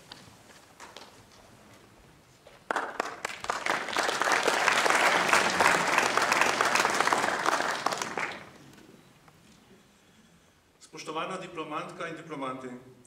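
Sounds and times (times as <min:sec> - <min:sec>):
audience applauding: 0:02.7 - 0:08.7.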